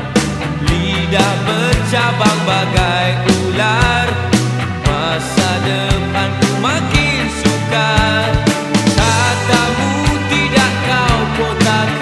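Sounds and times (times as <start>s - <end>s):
rock song with drums and bass: 0.0s - 12.0s.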